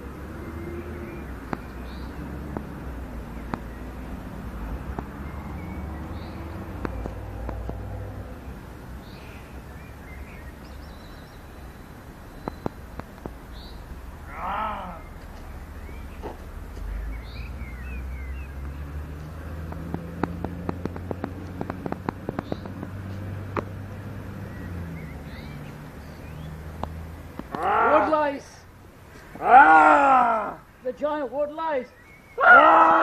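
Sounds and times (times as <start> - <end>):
sharp clicks: 19.6 - 23.8.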